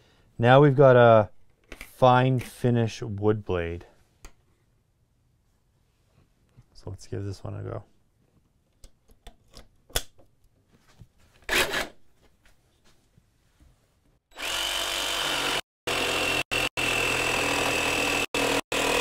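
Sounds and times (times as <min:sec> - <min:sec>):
jigsaw cutting wood: 0:11.5 - 0:12.0, 0:14.3 - 0:19.0.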